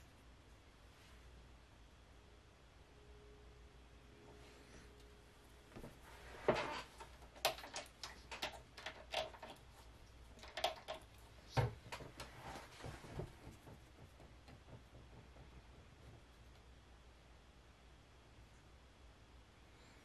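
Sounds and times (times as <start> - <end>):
small objects clicking and knocking: 7.0 - 12.3.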